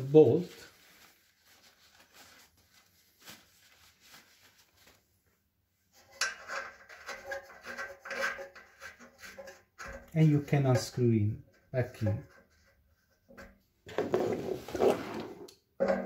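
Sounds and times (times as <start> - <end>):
tissue rubbing: 0.0 - 5.2.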